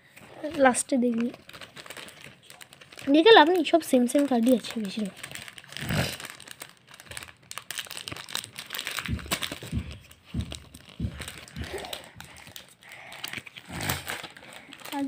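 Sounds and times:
dull low thumps: 8.8s - 12.4s.

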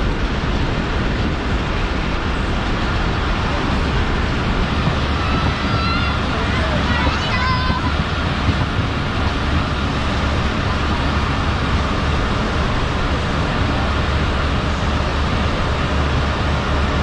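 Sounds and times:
train rushing noise: 0.0s - 17.0s
train wheels rumbling on rails: 0.0s - 17.0s.

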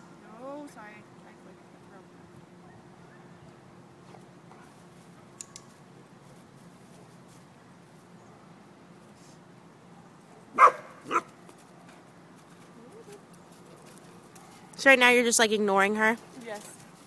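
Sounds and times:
dog barking: 10.5s - 11.3s.

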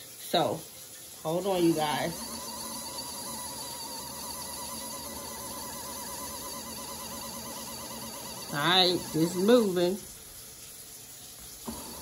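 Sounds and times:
washing machine motor humming: 0.2s - 10.3s, 11.4s - 12.0s.

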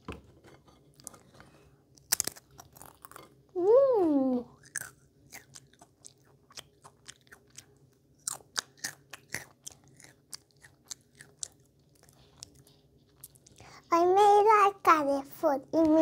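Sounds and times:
child crunching crisps: 0.9s - 3.3s, 4.5s - 13.8s.

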